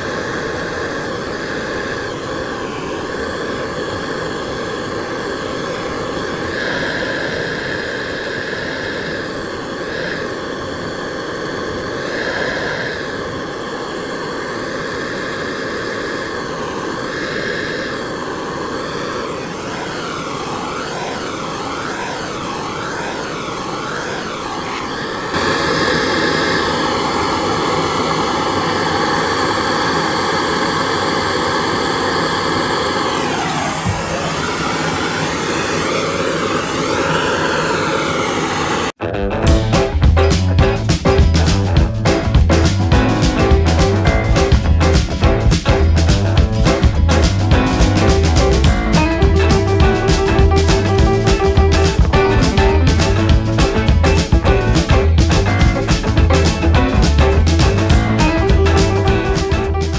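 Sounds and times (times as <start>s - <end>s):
blowtorch flame rushing: 0.0s - 39.0s.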